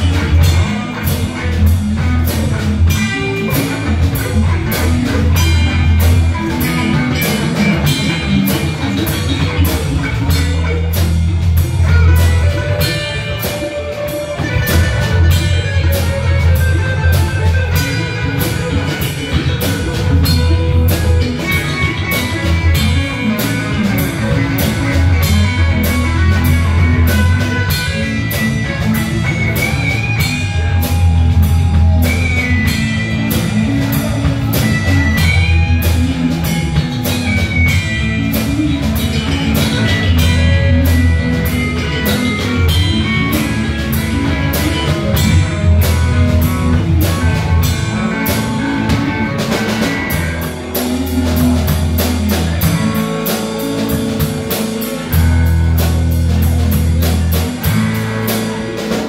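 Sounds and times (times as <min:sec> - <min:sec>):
rock band jamming: 0:00.0 - 0:59.0
sliding lead guitar: 0:00.0 - 0:59.0.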